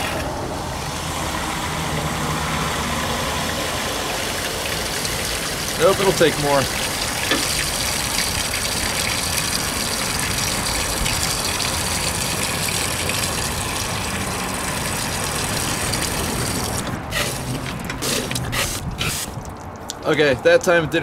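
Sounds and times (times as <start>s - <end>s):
hose water gushing: 0.9s - 19.4s.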